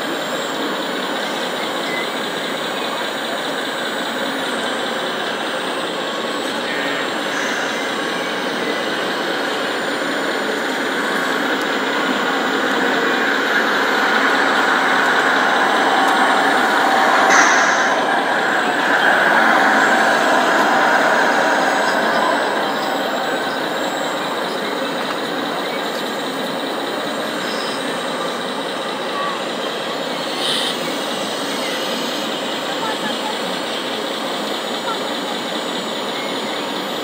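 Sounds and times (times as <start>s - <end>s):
sharp clack: 13.5s - 23.8s.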